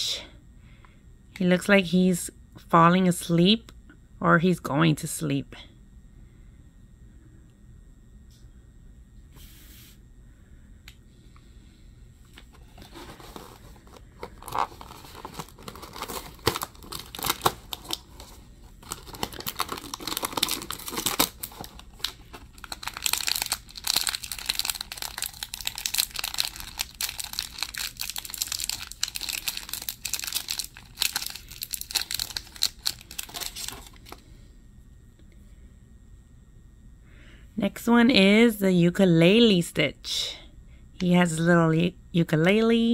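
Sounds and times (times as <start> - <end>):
plastic wrapper crinkling and tearing: 12.7 - 34.2.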